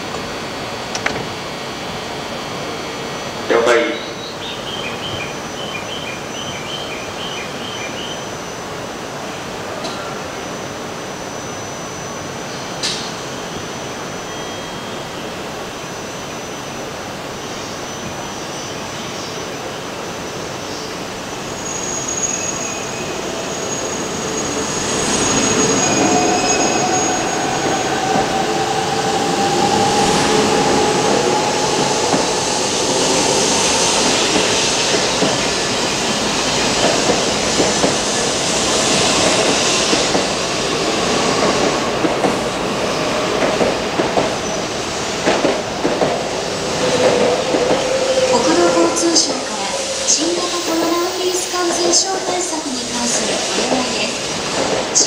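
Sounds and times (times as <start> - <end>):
train motor whine: 20.9 - 55.0
train wheel and air rush: 21.0 - 55.0.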